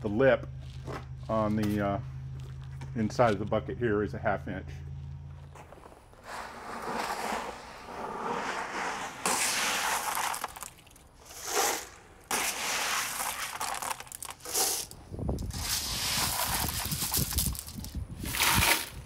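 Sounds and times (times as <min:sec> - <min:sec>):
hand digging in clay pebbles: 0:05.6 - 0:19.0
plastic buckets rattling: 0:09.7 - 0:19.0.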